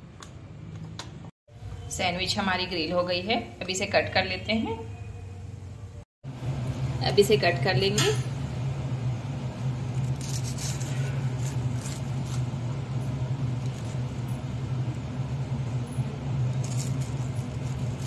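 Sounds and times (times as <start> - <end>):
steady low hum: 5.4 - 18.0
knife sawing through crisp sandwich: 10.0 - 12.5.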